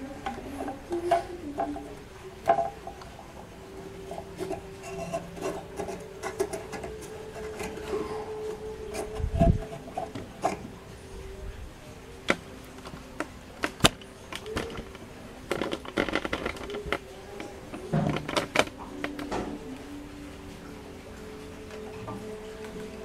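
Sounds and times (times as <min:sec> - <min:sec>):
faint steady hum: 0:00.0 - 0:23.0
rubbing of handled parts: 0:03.8 - 0:11.0, 0:12.2 - 0:19.6.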